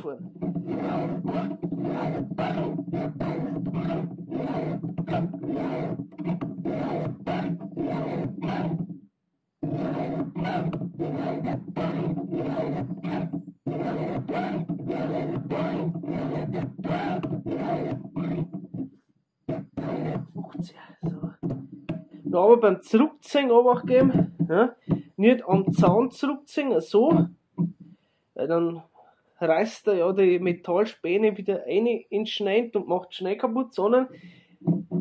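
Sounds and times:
file rasping on chainsaw chain: 0.2s - 8.9s, 9.6s - 18.9s, 19.5s - 20.4s.

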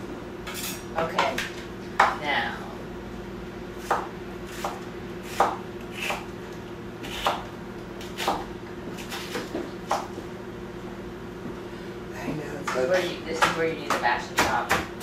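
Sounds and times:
knife chopping on wooden board: 3.8s - 6.3s, 7.0s - 10.1s, 13.4s - 15.0s.

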